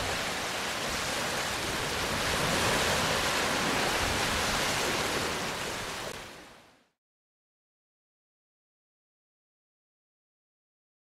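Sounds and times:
small waves on sandy beach: 0.0 - 6.9.

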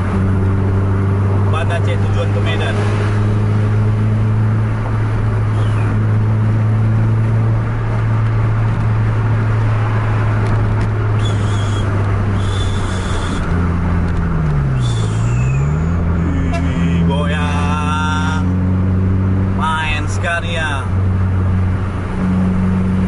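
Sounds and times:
car engine drone: 0.0 - 23.0
tyre and road noise: 0.0 - 23.0
engine tone sliding down and up: 11.1 - 19.7.

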